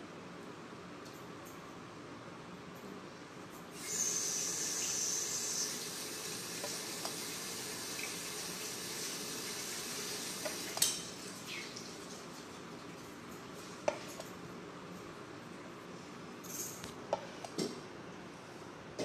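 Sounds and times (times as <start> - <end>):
water running from a tap: 3.8 - 13.0.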